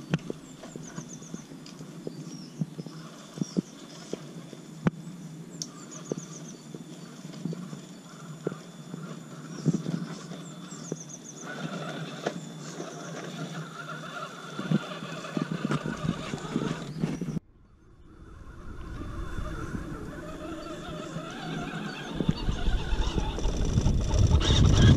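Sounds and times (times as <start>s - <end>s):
birds chirping: 0.0s - 4.2s, 5.0s - 24.9s
electric motor and gears whining: 7.2s - 24.9s.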